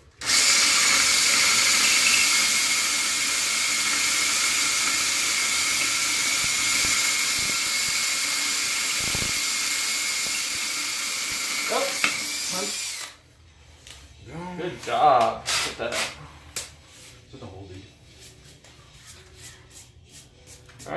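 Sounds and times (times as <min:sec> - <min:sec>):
cordless drill whine: 0:00.2 - 0:13.2
drill bit cutting hiss: 0:00.2 - 0:13.2.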